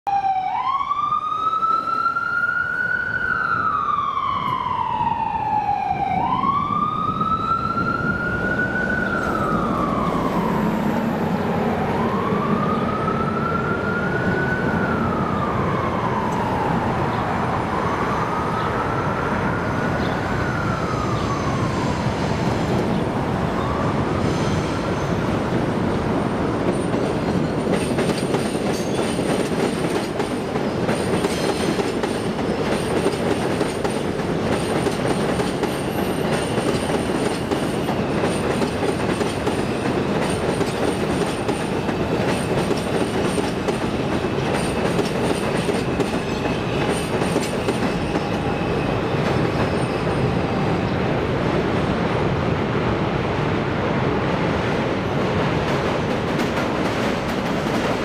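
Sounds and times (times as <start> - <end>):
subway train rumble: 1.0 - 58.0
train wheels squealing: 26.6 - 33.2, 33.8 - 51.0.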